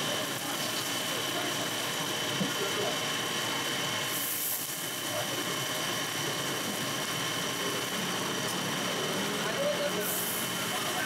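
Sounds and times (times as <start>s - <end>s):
food sizzling on a griddle: 4.1s - 5.4s, 6.1s - 11.0s.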